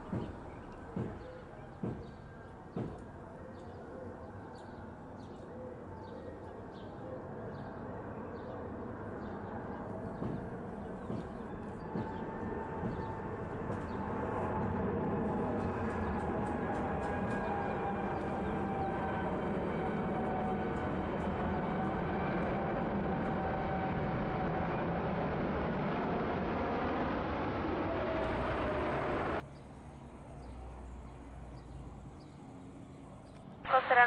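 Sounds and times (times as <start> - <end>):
jet engine rumble: 7.8 - 34.0.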